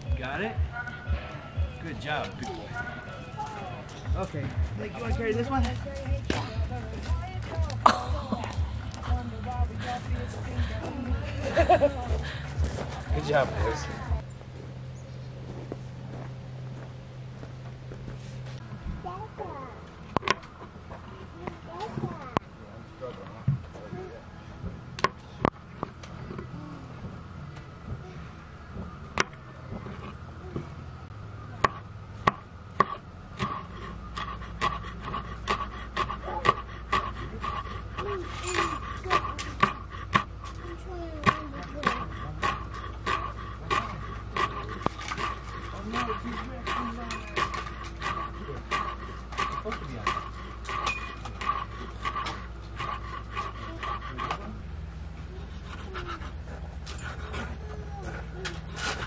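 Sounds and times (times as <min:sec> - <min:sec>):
knife chopping on wooden board: 0:31.6 - 0:40.6.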